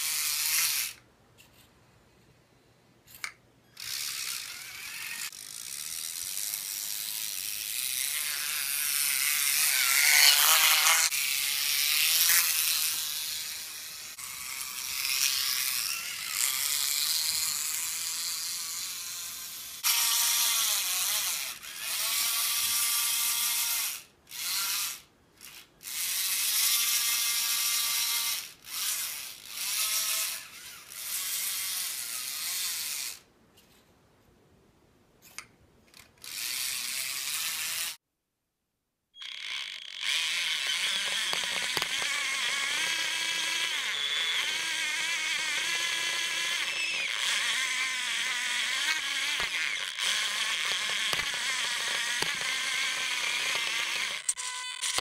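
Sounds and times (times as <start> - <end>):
small electric motors whirring: 3.7 - 33.3, 36.2 - 38.0, 39.2 - 55.0
plastic tracks and gears running: 39.2 - 55.0.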